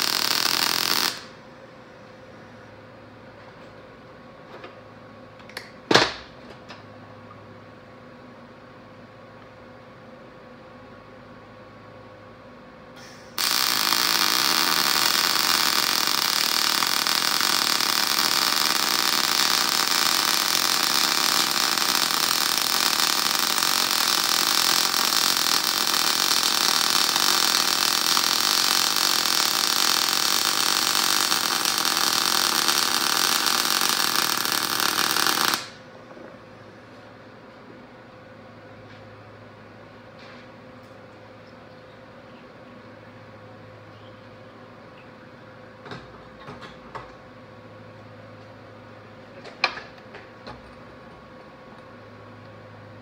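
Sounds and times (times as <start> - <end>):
welder arc hissing: 0.0 - 1.4, 13.0 - 35.8.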